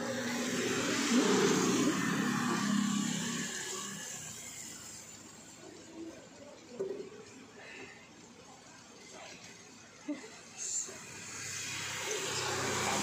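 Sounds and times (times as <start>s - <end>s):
car passing on wet street: 0.0s - 5.6s, 11.0s - 13.0s.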